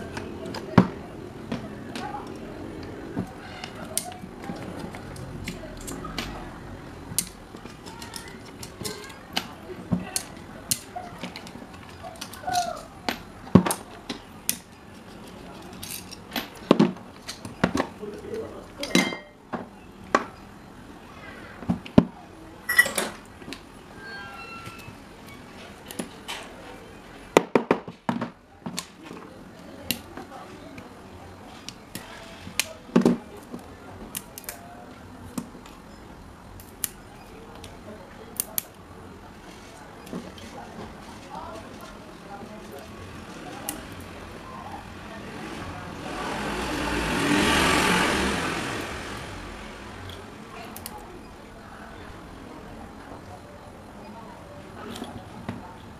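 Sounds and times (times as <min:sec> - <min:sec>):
clicks and taps of handled tools: 0:07.1 - 0:17.9.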